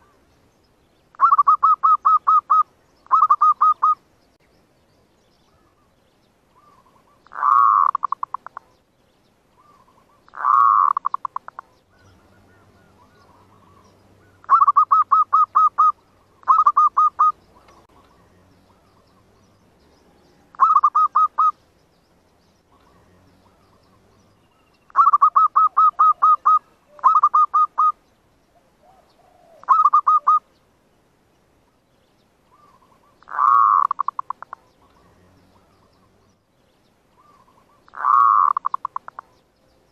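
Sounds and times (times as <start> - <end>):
dove staccato cooing: 1.2 - 4.0, 6.6 - 8.8, 9.6 - 19.5, 20.4 - 21.6, 24.9 - 28.0, 28.6 - 30.4, 32.5 - 36.3, 37.2 - 39.4.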